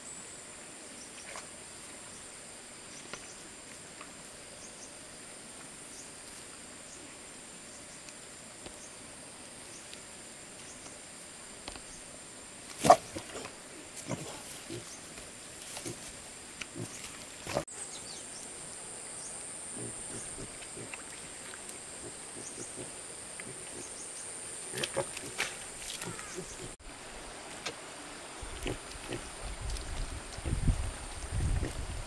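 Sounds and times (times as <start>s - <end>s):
high insect buzz: 4.9s - 27.3s.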